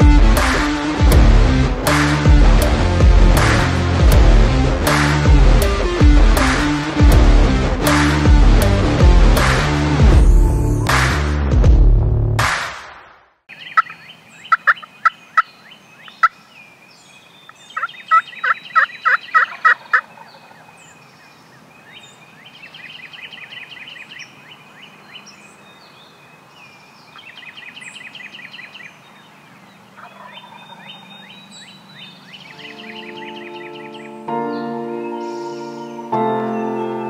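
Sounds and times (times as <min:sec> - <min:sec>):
turkey calling: 0:13.5 - 0:15.5, 0:17.8 - 0:20.6, 0:30.0 - 0:31.4, 0:32.3 - 0:34.1
songbirds trilling and chirping: 0:13.5 - 0:37.0.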